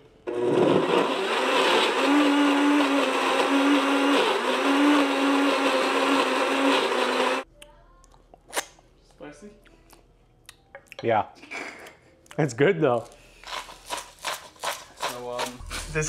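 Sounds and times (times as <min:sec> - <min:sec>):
blender running: 0:00.2 - 0:07.4.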